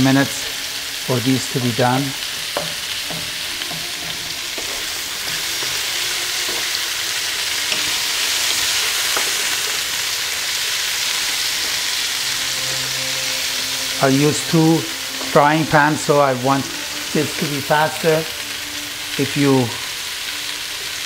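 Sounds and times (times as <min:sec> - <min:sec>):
zucchini sizzling in a pan: 0:00.0 - 0:21.0
wooden spatula tapping and scraping: 0:02.3 - 0:06.7.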